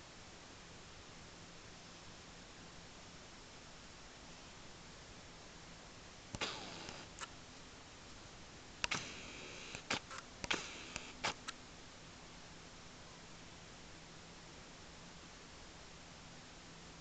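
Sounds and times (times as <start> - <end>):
sharp clicks and knocks: 6.4 - 7.3, 8.8 - 11.5.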